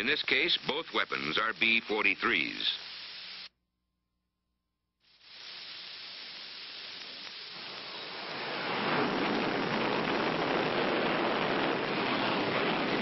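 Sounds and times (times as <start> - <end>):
jet engine roaring: 7.5 - 13.0.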